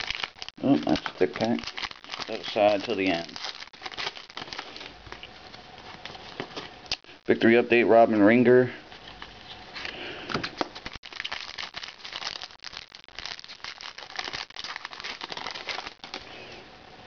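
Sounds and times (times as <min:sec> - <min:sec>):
foil wrapper crinkling and tearing: 0:00.0 - 0:07.2, 0:10.6 - 0:16.4.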